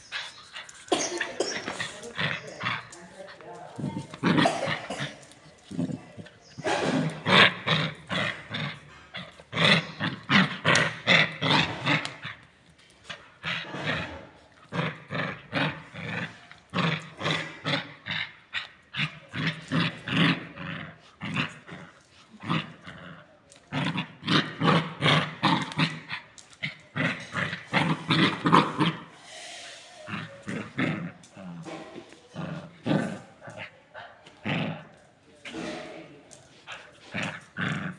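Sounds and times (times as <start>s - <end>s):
puppy growling and yapping: 3.8s - 12.4s.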